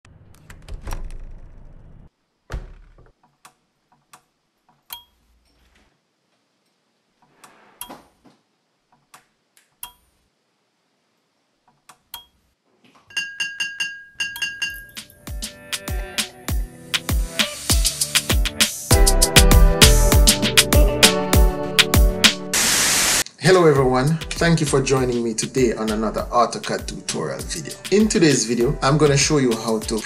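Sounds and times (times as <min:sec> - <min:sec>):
front door being opened: 0:00.2 - 0:01.9.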